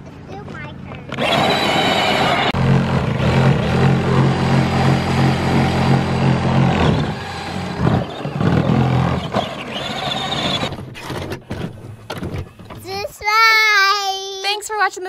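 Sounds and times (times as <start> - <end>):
toy tractor electric motor droning: 1.1 - 11.2.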